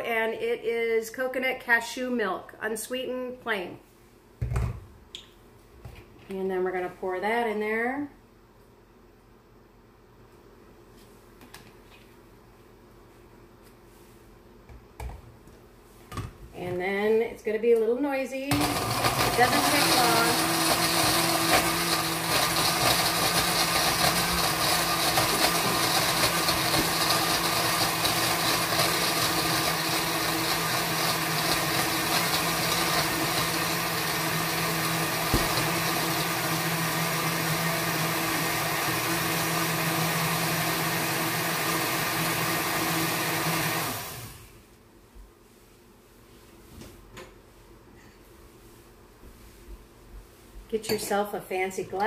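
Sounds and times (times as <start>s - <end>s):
blender motor winding down: 18.5s - 44.5s
blender running: 18.5s - 44.6s.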